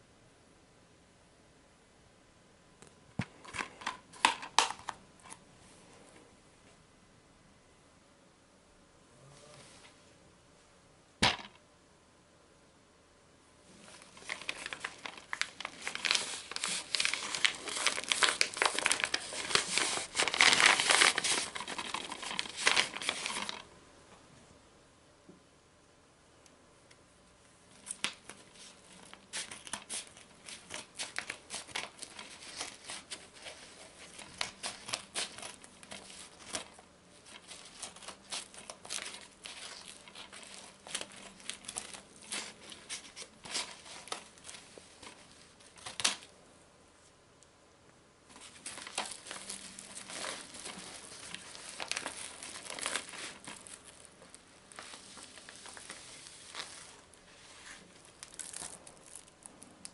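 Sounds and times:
paper crinkling and tearing: 0:13.8 - 0:23.6, 0:27.8 - 0:46.3, 0:48.3 - 0:59.9
scissors cutting paper envelope: 0:14.2 - 0:23.6, 0:27.9 - 0:45.2, 0:48.4 - 0:56.9.

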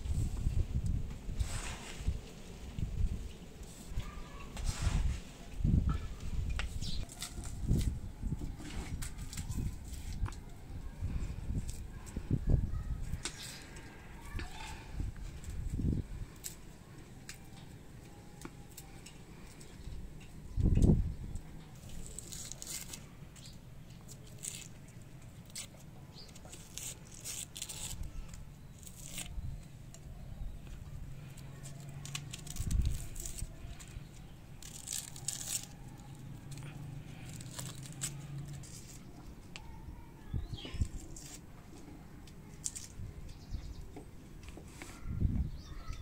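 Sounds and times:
onion skin crackling: 0:06.4 - 0:39.8, 0:40.4 - 0:43.5.

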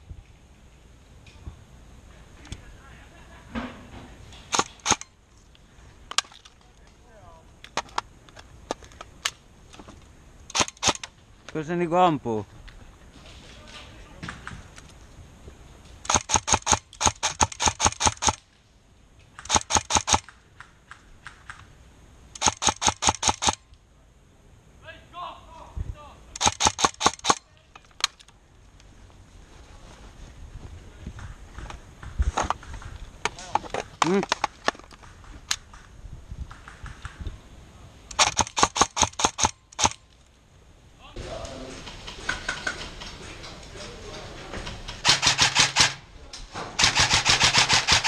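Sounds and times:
airsoft rifle shots: 0:04.5 - 0:05.1, 0:10.5 - 0:11.1, 0:16.0 - 0:18.4, 0:19.4 - 0:20.4, 0:22.4 - 0:23.6, 0:26.3 - 0:27.5, 0:38.1 - 0:40.0, 0:45.0 - 0:46.1, 0:46.8 - 0:48.0
airsoft gun shots: 0:45.0 - 0:46.0, 0:46.8 - 0:48.0.

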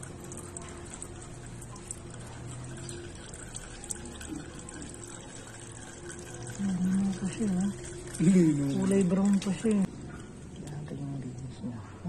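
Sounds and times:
oil trickling into plastic basin: 0:00.0 - 0:10.9.

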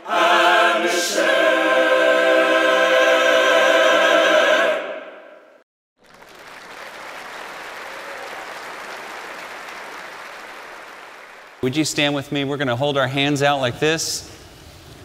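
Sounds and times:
choir singing sustained chord: 0:00.0 - 0:05.5
audience applause: 0:06.0 - 0:11.6.

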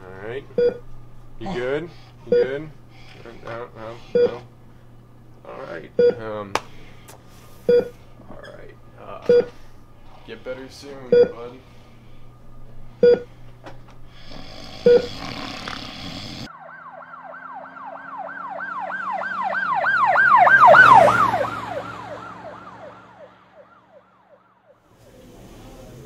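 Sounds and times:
hiss: 0:14.2 - 0:16.5
emergency siren yelping: 0:16.5 - 0:24.9.

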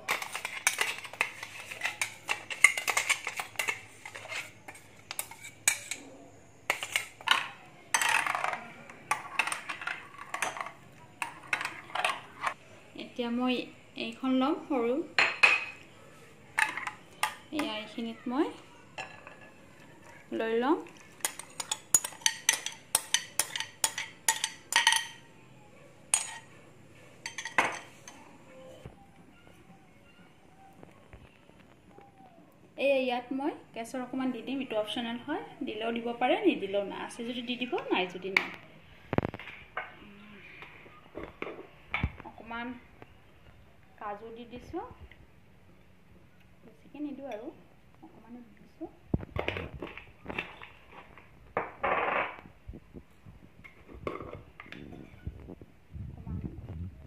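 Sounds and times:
metal spoon clinking on blender jar: 0:21.2 - 0:25.2.

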